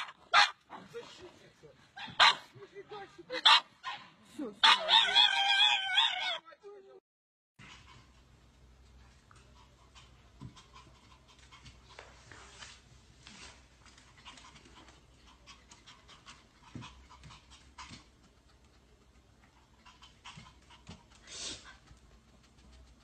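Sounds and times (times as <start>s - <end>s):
small dog panting: 7.6s - 12.6s, 13.3s - 23.0s.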